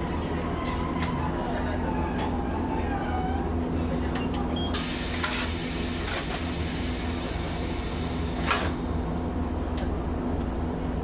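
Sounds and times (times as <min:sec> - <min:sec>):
tram equipment hum: 0:00.0 - 0:11.0
compressed air hissing: 0:04.8 - 0:08.9.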